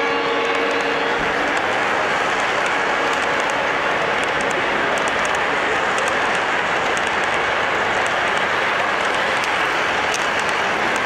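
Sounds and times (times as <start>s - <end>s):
model train wheels rolling on rail: 0.0s - 11.0s
faint clicks: 2.3s - 11.0s.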